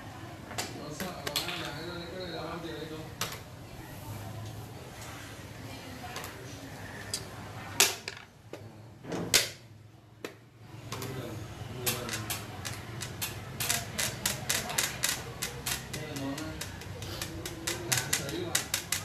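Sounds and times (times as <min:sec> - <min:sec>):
chess pieces clacking on board: 0:11.8 - 0:19.0
pieces clicking together: 0:11.8 - 0:19.0.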